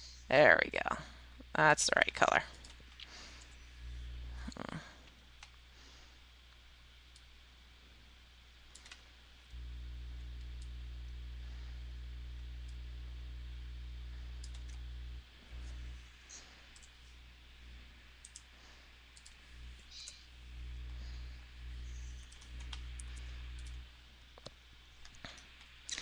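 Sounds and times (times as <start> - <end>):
low steady hum: 0.0 - 26.0
computer mouse clicks: 8.7 - 9.1, 14.4 - 14.8, 16.3 - 17.0, 18.2 - 18.5, 19.1 - 20.2, 21.9 - 23.8.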